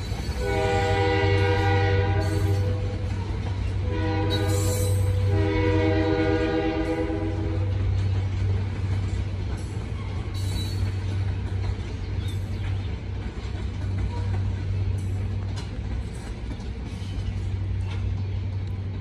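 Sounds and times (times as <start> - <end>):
freight cars rumbling: 0.0 - 19.0
locomotive air horn blasts: 0.4 - 3.1, 3.8 - 7.8.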